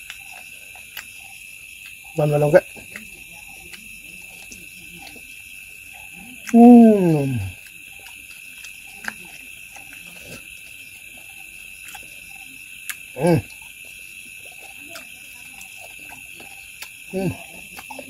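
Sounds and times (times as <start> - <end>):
mouth clicks and chewing: 0.0 - 18.0.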